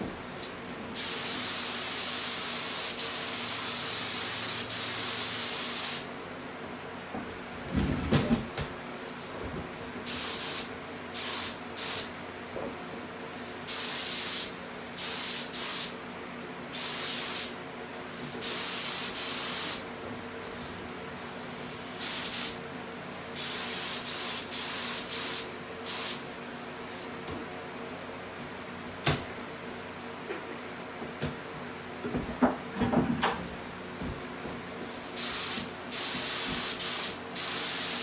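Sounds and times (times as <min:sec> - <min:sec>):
spray paint hissing bursts: 0:01.0 - 0:06.1, 0:10.1 - 0:12.1, 0:13.7 - 0:16.0, 0:16.7 - 0:17.6, 0:18.4 - 0:19.8, 0:22.0 - 0:22.6, 0:23.4 - 0:26.2, 0:35.1 - 0:38.0.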